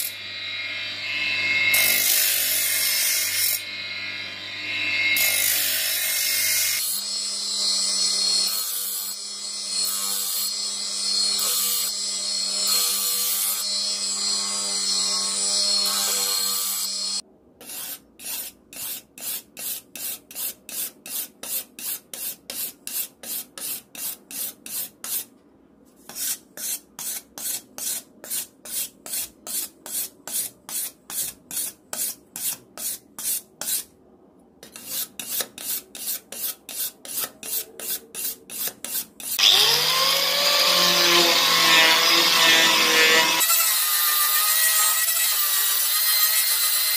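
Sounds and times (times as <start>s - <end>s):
bench grinder grinding blade: 0.0s - 20.5s, 34.6s - 46.9s
hand-sharpening rasp strokes: 14.9s - 25.3s, 26.0s - 33.9s, 34.6s - 39.4s.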